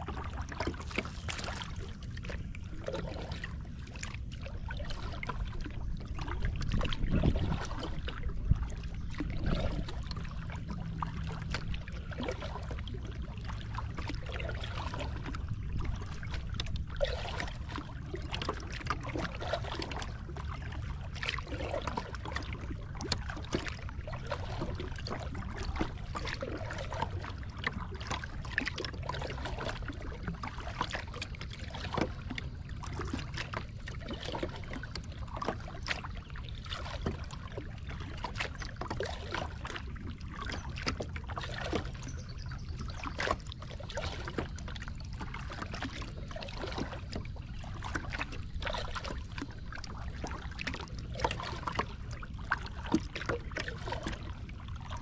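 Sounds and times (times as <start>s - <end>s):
low steady rumble: 0.0s - 55.0s
water lapping against kayak hull: 0.0s - 55.0s.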